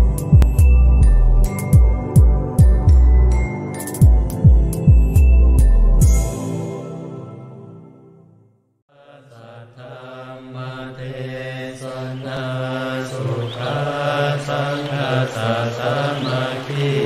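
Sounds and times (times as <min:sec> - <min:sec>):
low steady chanting: 0:08.9 - 0:17.0.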